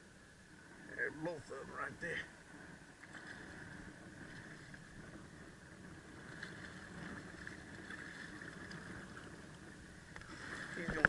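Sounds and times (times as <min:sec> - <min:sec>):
constant hum: 0:00.0 - 0:11.0
wind: 0:00.0 - 0:11.0
water wash: 0:06.1 - 0:11.0.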